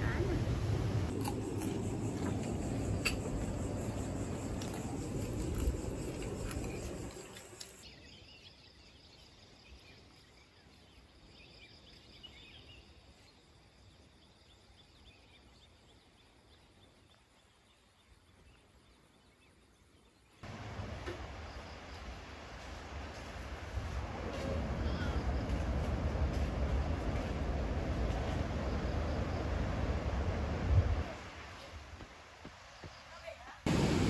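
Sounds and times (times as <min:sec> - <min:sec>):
sea surf: 0:00.0 - 0:01.1, 0:33.6 - 0:34.0.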